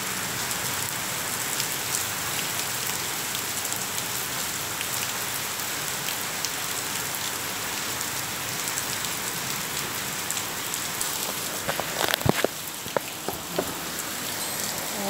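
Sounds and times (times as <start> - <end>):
steady rain on stone paving: 0.0 - 15.0
single raindrops ticking: 11.0 - 14.8.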